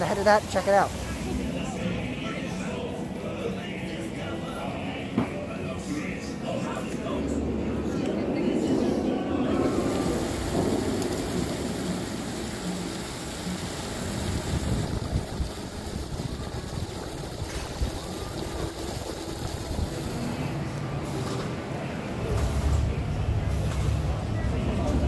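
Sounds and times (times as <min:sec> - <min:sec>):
steady outdoor noise: 0:00.0 - 0:25.0
wind buffeting microphone: 0:14.3 - 0:20.1.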